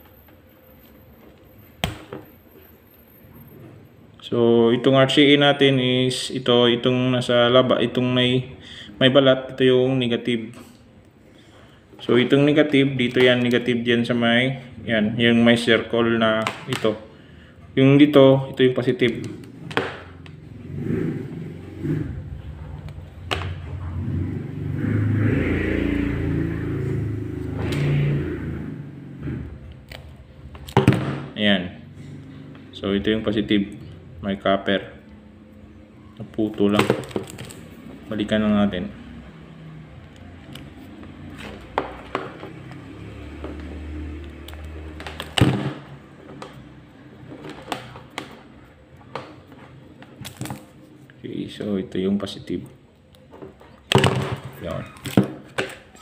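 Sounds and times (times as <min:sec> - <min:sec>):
vehicle engine rumble: 0:19.5 - 0:30.7.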